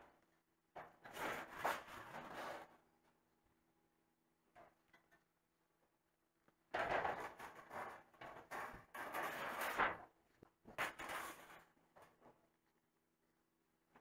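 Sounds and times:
sheet metal scraping over steel: 7.2s - 10.0s.

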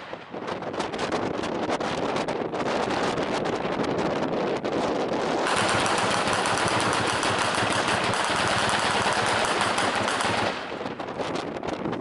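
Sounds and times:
anti-aircraft gun firing burst: 5.4s - 11.7s.

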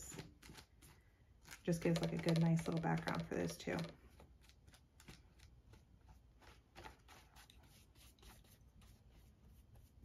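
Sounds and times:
paintbrush swishing on paper: 4.0s - 10.0s.

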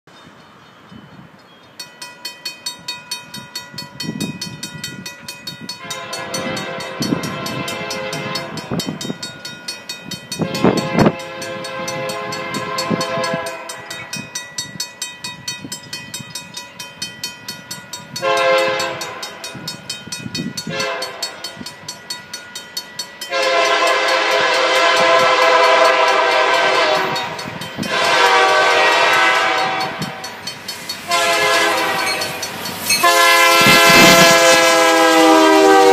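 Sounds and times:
crossing bell dinging: 0.1s - 35.9s
diesel locomotive approaching: 0.1s - 35.9s
train horn blasts: 5.8s - 9.0s, 10.3s - 14.2s, 18.2s - 19.6s, 20.6s - 21.5s, 23.3s - 30.3s, 31.0s - 35.9s.

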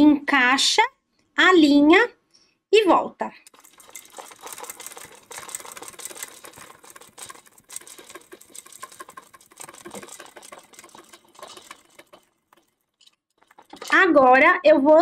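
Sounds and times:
sewing machine stitching: 3.5s - 14.4s.

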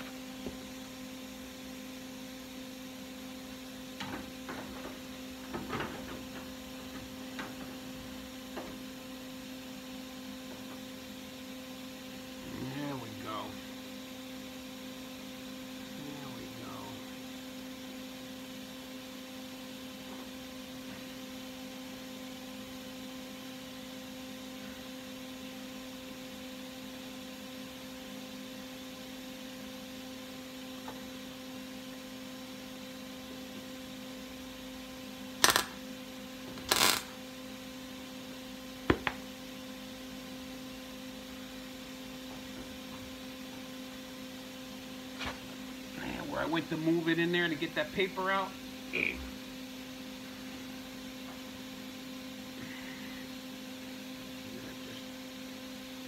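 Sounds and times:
electrical hum: 0.0s - 56.0s
sharp click: 35.4s - 35.8s.

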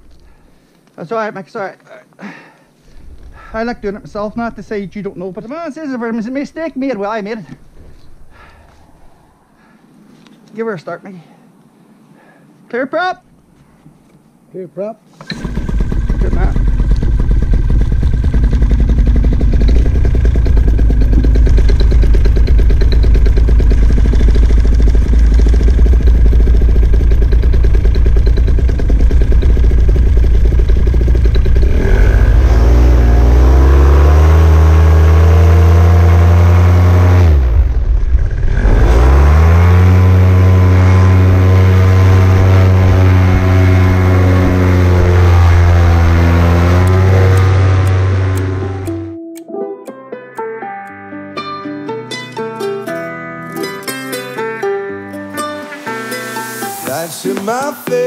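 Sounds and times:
two-stroke paramotor engine revving: 15.2s - 49.0s.

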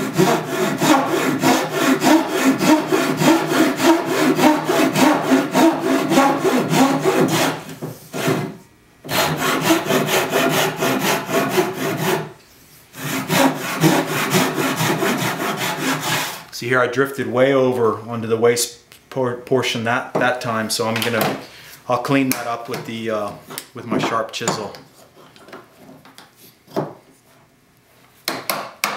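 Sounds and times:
hand saw rasping through wood: 0.0s - 12.3s, 12.9s - 16.5s.

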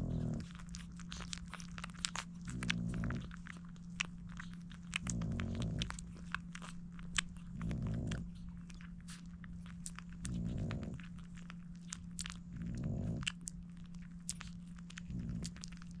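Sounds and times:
puppies suckling wet clicks: 0.0s - 16.0s
dog breathing slowly: 4.3s - 6.3s, 7.4s - 9.3s, 10.2s - 11.2s, 12.4s - 13.3s.

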